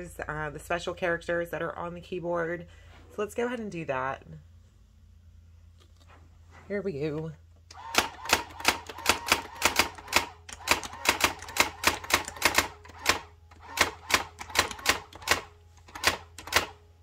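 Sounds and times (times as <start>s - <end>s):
faint motor hum: 0.0s - 17.0s
typewriter clacking: 8.0s - 16.8s.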